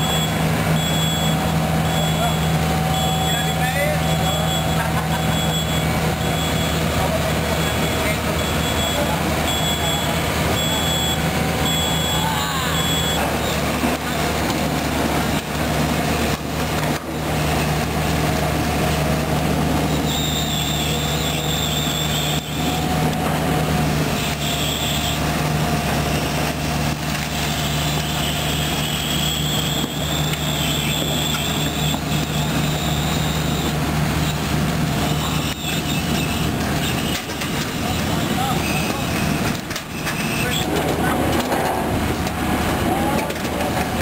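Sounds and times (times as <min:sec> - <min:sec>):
diesel engine humming: 0:00.0 - 0:44.0
high thin squeal: 0:19.9 - 0:22.7, 0:27.5 - 0:37.2, 0:37.8 - 0:40.7.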